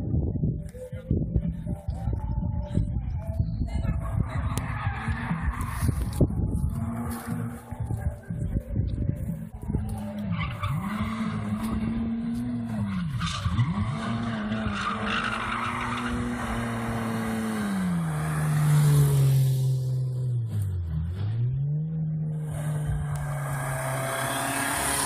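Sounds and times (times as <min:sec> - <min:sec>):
car engine revving high: 0:10.7 - 0:25.0.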